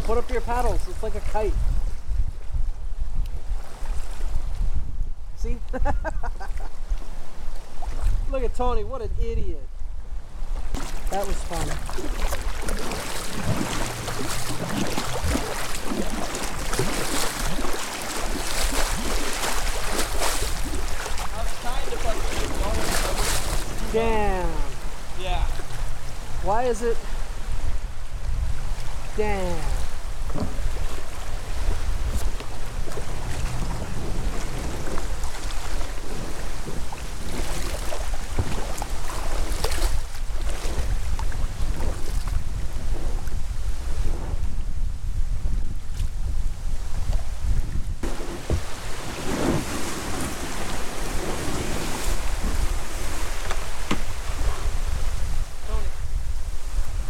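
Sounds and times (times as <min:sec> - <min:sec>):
wind buffeting microphone: 0:00.0 - 0:57.0
choppy water splashing: 0:06.0 - 0:08.3, 0:10.5 - 0:57.0
paddle dipping in water: 0:10.6 - 0:26.5, 0:27.1 - 0:44.1, 0:48.0 - 0:55.6.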